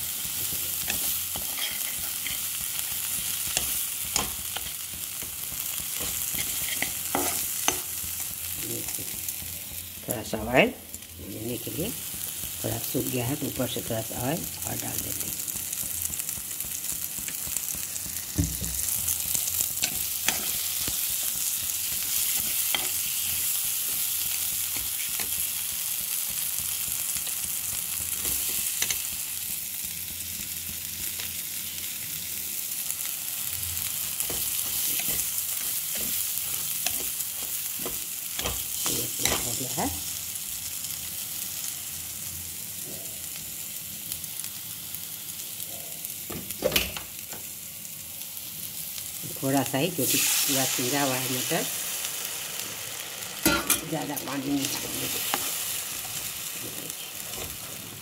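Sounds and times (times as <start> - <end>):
food sizzling in oil: 0.0 - 58.0
metal spatula scraping a pan: 0.8 - 2.5, 6.0 - 7.8.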